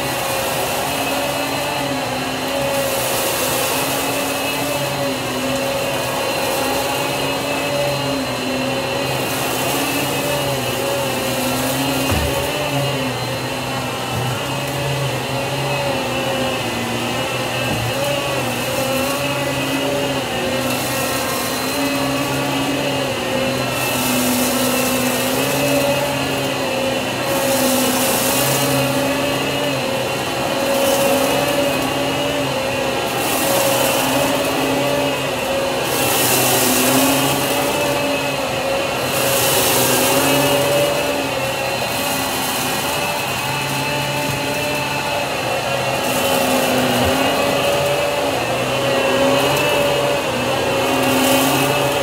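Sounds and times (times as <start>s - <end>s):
vacuum cleaner motor hum: 0.0s - 52.0s
rushing air hiss: 27.1s - 52.0s.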